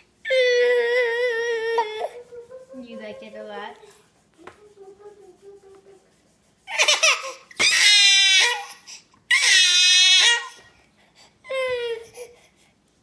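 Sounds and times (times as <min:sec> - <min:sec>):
baby crying: 0:00.3 - 0:03.7, 0:06.7 - 0:10.7.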